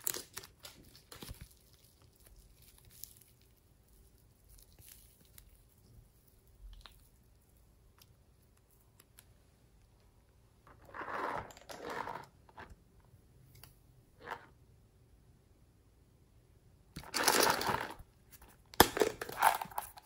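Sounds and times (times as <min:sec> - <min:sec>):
rustling scrapes: 0:10.7 - 0:12.7.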